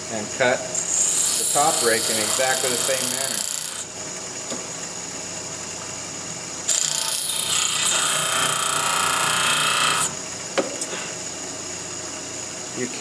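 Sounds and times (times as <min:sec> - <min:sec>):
steel grinding hiss: 0:00.8 - 0:03.8
bench grinder running: 0:00.8 - 0:03.9, 0:06.6 - 0:10.2.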